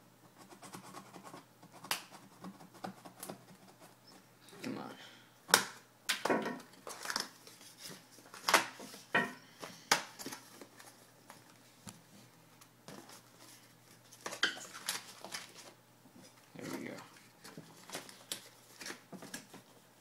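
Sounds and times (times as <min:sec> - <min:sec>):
plastic wrap crinkling: 0:06.8 - 0:08.8.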